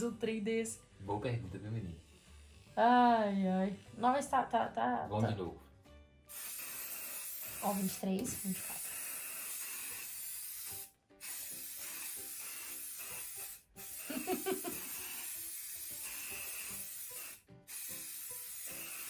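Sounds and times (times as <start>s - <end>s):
faint background music: 0.0s - 19.0s
hairspray can hissing: 6.3s - 19.0s.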